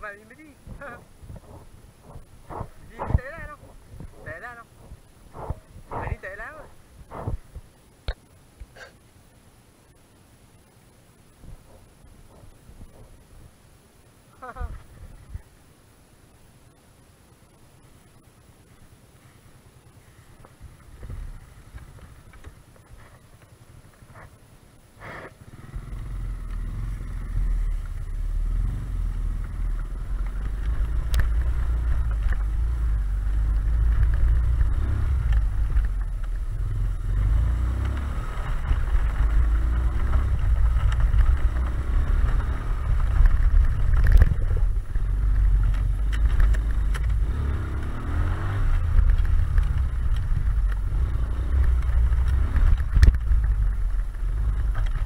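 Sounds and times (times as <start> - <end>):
motorcycle engine running: 0.0 - 7.8, 11.4 - 13.6, 19.8 - 55.0
wind rumble on microphone: 0.0 - 7.8, 11.3 - 13.6, 14.4 - 15.6, 20.4 - 24.4, 25.6 - 55.0
knocks from rough ground: 0.7 - 8.2, 11.4 - 13.5, 29.3 - 48.0.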